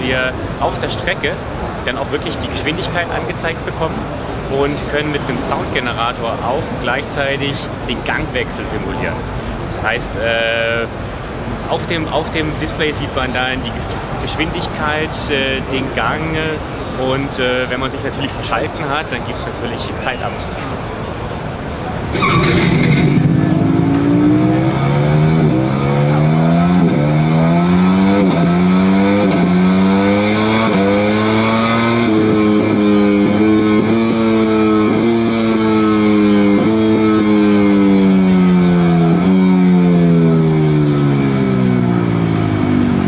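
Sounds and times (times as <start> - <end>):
simulated motorcycle engine revving: 22.1 - 43.0.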